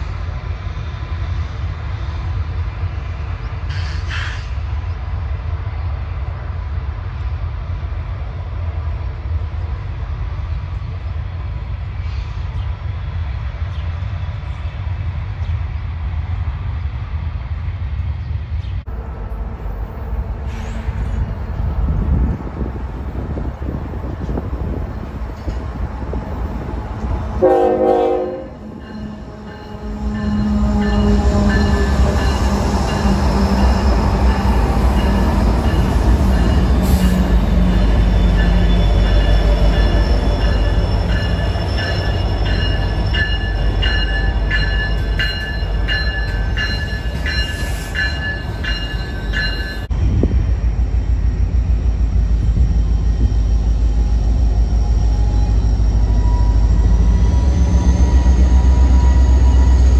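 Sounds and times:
freight train wheel squeal: 0:03.4 - 0:05.0, 0:19.9 - 0:23.4, 0:24.0 - 0:49.9, 0:52.3 - 0:59.9
diesel locomotive rumble: 0:18.6 - 0:59.9
locomotive air horn: 0:27.4 - 0:31.6.

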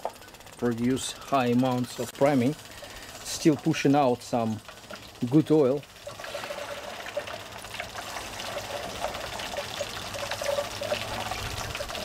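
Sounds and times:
small crackling ticks: 0:00.0 - 0:06.1
oil trickling into metal can: 0:02.7 - 0:12.0.

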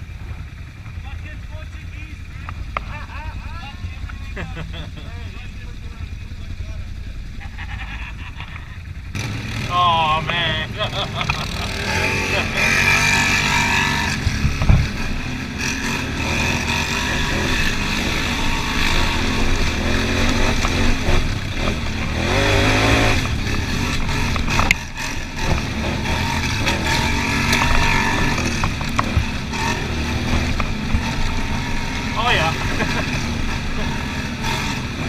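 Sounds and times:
atv engine running: 0:00.0 - 0:35.0
sharp knocks: 0:14.2 - 0:15.0.

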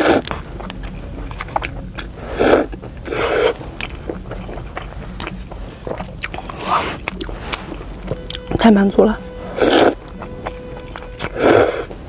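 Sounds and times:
person slurping noodles: 0:00.0 - 0:00.3, 0:02.2 - 0:03.7, 0:05.8 - 0:07.8, 0:09.6 - 0:10.0, 0:11.2 - 0:12.0
chewing: 0:00.0 - 0:08.7, 0:09.5 - 0:12.0.

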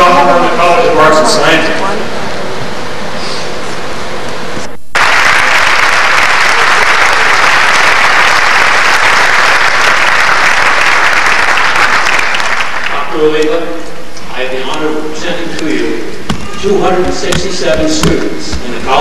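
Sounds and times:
audience applauding: 0:05.0 - 0:13.1.

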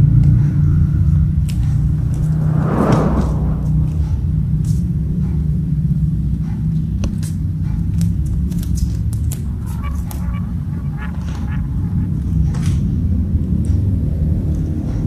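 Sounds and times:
low rumble: 0:01.5 - 0:04.5.

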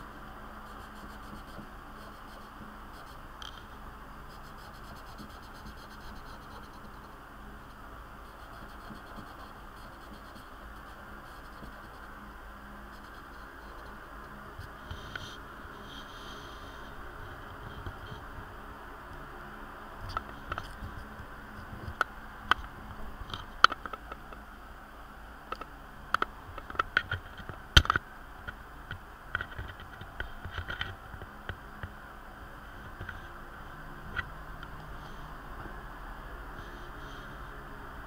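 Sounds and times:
steady hiss: 0:00.0 - 0:38.0.

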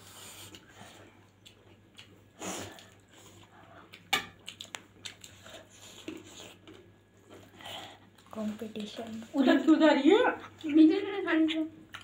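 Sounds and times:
wet chewing: 0:00.3 - 0:09.3.

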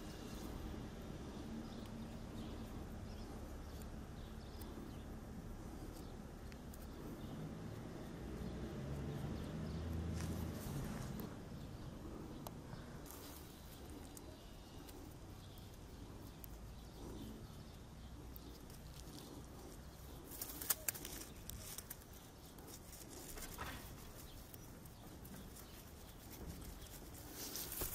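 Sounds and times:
steady low rumble: 0:00.0 - 0:27.9
sharp clicks and rustles: 0:09.9 - 0:27.9.

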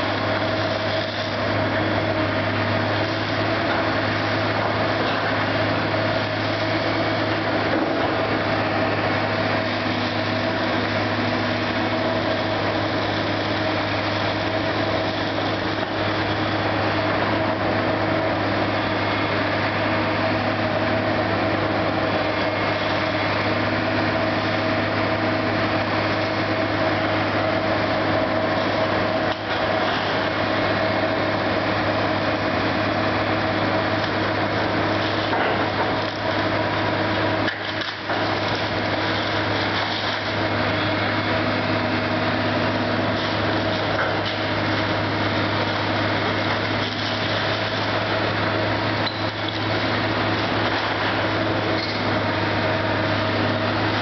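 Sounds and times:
diesel engine droning: 0:00.0 - 0:54.0.

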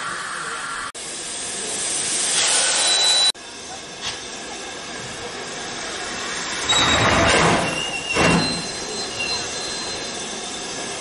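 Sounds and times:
steam hissing: 0:00.0 - 0:11.0
steam locomotive chuffs: 0:01.0 - 0:11.0
faint high squeal: 0:06.6 - 0:11.0.

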